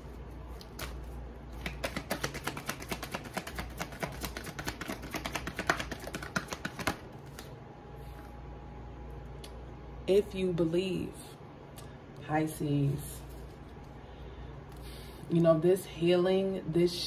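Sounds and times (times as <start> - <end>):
cards being shuffled: 0.4 - 7.6.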